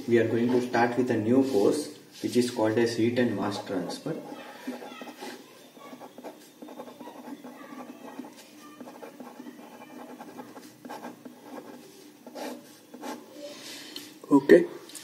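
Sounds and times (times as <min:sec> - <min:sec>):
pen writing on paper: 0:03.5 - 0:13.3.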